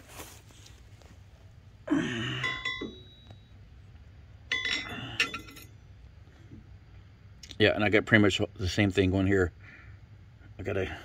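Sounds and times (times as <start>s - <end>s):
metal brackets knocking together: 2.4s - 3.4s, 4.5s - 5.7s.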